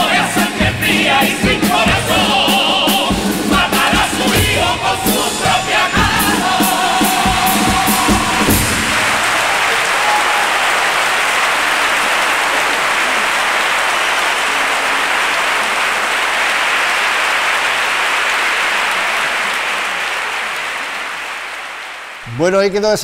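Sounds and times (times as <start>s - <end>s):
large audience applauding: 5.8s - 22.8s.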